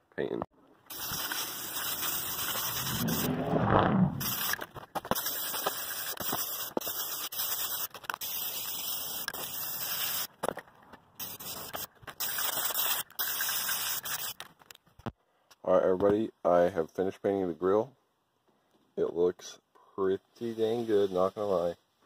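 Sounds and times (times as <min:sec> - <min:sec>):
spray paint can hissing: 0:00.9 - 0:03.3, 0:04.2 - 0:10.3, 0:11.2 - 0:14.4
deep rumble: 0:02.7 - 0:04.3.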